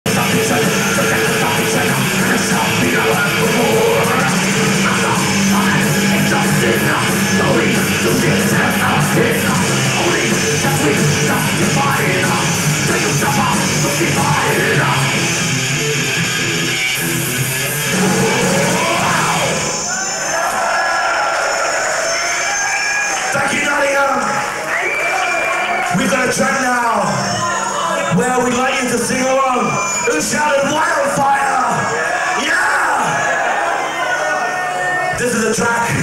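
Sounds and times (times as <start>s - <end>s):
singer shouting: 0.1s - 15.2s, 17.8s - 20.6s
metal band playing live: 0.1s - 20.2s.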